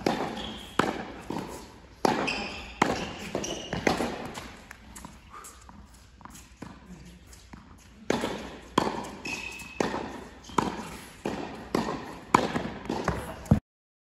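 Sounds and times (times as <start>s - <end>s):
tennis balls struck and bouncing: 0.0s - 5.2s, 6.2s - 13.6s
high squeak: 2.2s - 3.9s, 9.2s - 9.8s.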